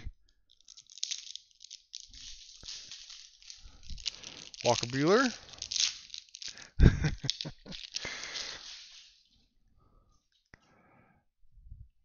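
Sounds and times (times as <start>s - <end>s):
soft rustle of cards: 0.3s - 10.5s
foil wrapper crinkling: 0.5s - 9.3s.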